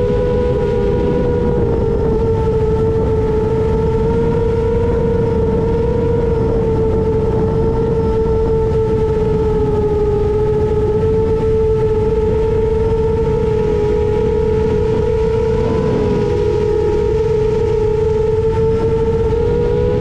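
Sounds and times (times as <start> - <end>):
rush of wind and prop wash: 0.0 - 20.0
drone motors whining: 10.5 - 20.0.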